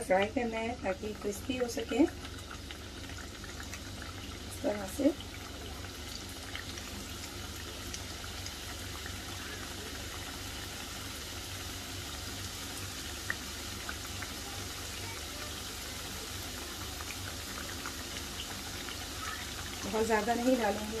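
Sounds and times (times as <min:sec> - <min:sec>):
hot oil sizzling: 0:00.0 - 0:21.0
oil popping: 0:01.1 - 0:10.4.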